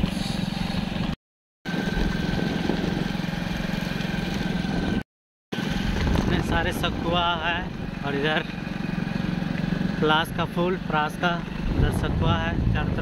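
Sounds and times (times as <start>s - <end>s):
motorcycle engine running: 0.0s - 13.0s
wind noise on microphone: 1.7s - 3.3s, 5.8s - 7.4s, 11.6s - 13.0s.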